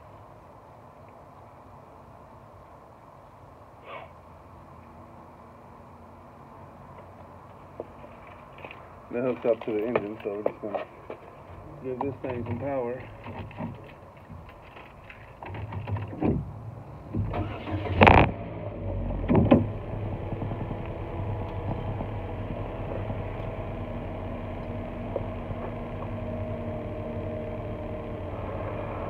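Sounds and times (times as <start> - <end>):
car engine cranking: 14.5 - 28.7
car engine idling: 16.4 - 29.0
engine firing bursts: 17.1 - 23.1.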